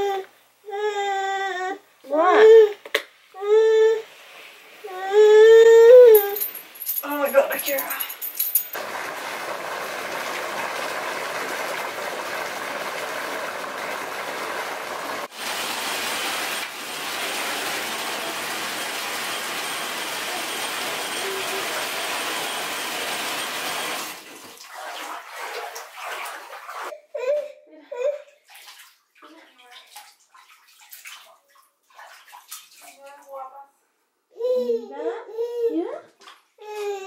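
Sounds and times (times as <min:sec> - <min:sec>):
water pouring into bathtub: 0:08.8 - 0:26.9, 0:28.4 - 0:33.4.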